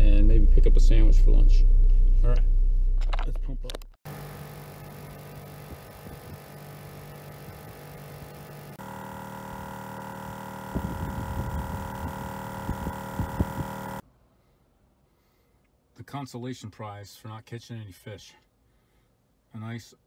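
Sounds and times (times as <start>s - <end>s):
air compressor humming: 4.0s - 14.0s.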